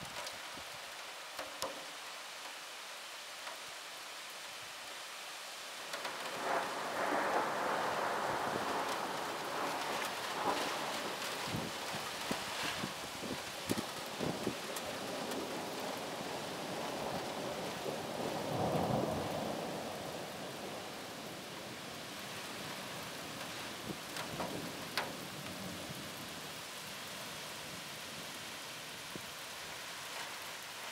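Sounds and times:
steady rain falling: 0.0s - 30.9s
rolling thunder: 6.1s - 12.9s.

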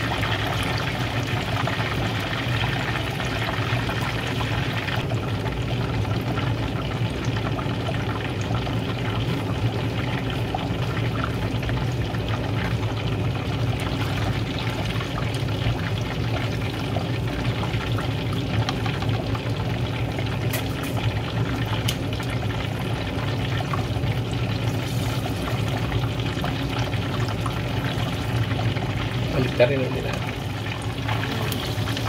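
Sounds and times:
oil sizzling and crackling: 0.0s - 32.0s.

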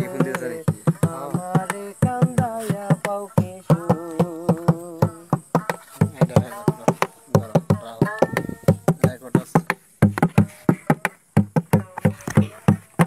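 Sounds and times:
folk melody with wavering notes: 0.0s - 9.5s
steady drum beat: 0.0s - 13.0s.

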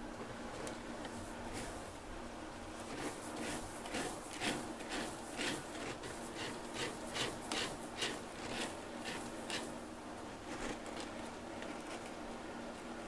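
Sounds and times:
cat scraping in litter: 2.8s - 9.8s.

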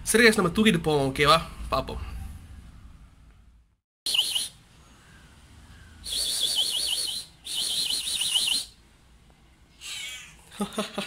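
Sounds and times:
person whistling bird-like call: 4.1s - 4.6s, 6.0s - 8.8s.

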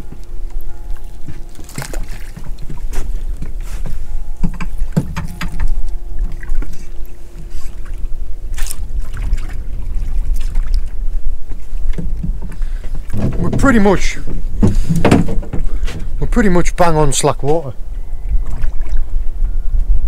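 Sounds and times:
faint steady hum: 0.0s - 20.0s
water at boat hull: 0.0s - 20.0s
wind rumble on microphone: 0.0s - 20.0s
fishing gear knocks and rustles: 0.1s - 7.9s, 11.8s - 16.2s.

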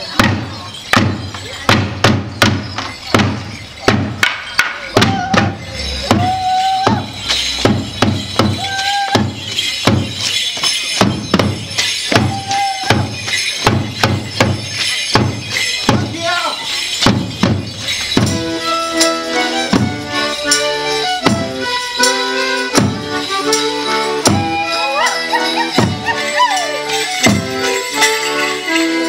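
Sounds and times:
drum beats: 0.0s - 29.0s
held high notes: 0.0s - 29.0s
wooden sticks clashing: 0.1s - 14.2s.

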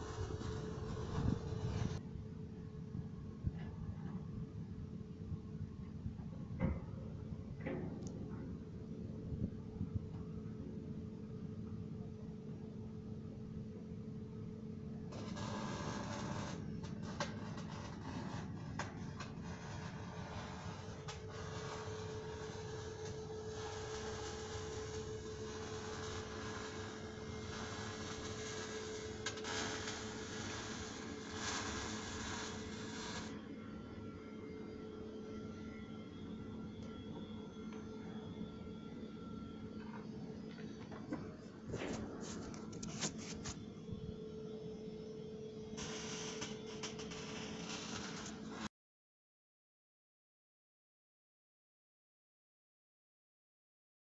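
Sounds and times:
steady machine hum: 0.0s - 48.7s
hiss: 23.6s - 33.3s.

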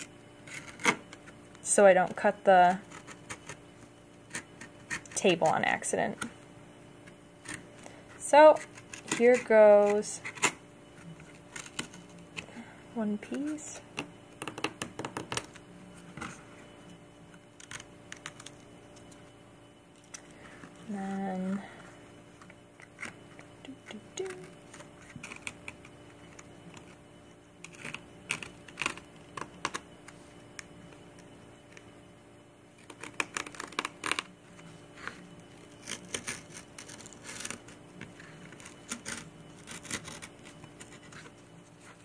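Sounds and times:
faint steady hum: 0.0s - 42.0s.

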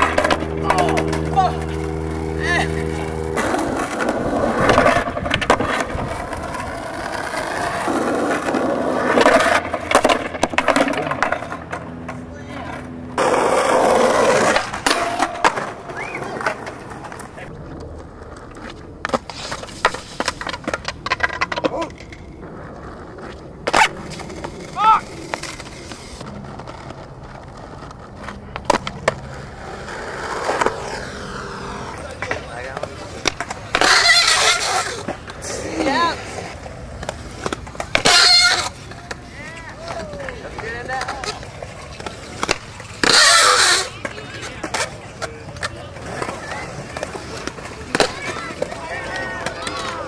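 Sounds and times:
skateboard clattering: 0.0s - 50.0s
skateboard wheels rolling on concrete: 0.0s - 50.0s.

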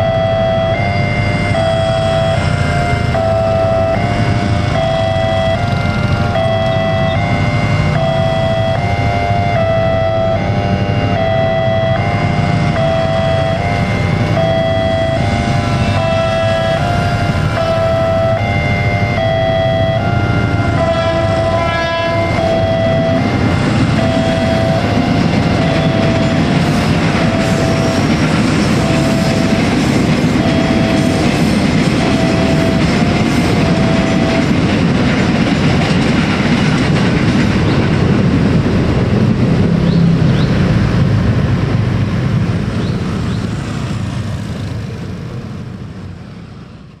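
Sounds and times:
level crossing alarm beeping: 0.0s - 36.0s
electric train rumble: 0.0s - 47.0s
train wheel clatter: 23.8s - 41.2s.

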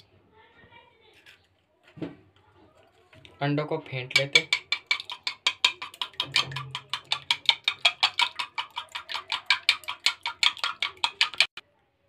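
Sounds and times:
utensil clicking against dish: 4.1s - 11.6s.

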